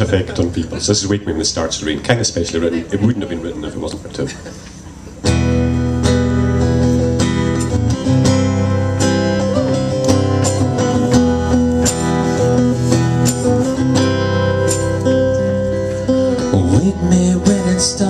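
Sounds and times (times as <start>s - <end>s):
acoustic guitar strumming: 5.0s - 18.0s.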